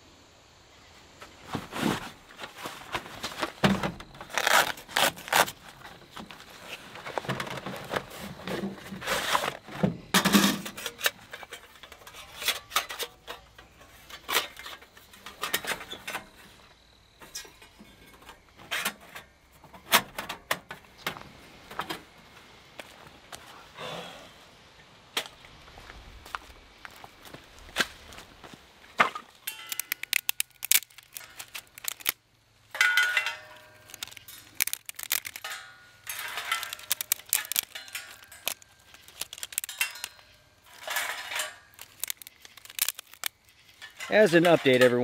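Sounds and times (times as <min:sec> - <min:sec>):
steel stove panels clinking and scraping: 0:07.1 - 0:21.2, 0:29.0 - 0:32.1, 0:32.7 - 0:45.0.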